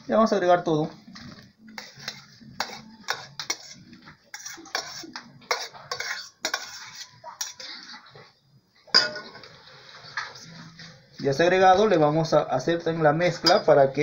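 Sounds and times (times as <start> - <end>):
bowl clinking against steel bowl: 13.4 - 13.8.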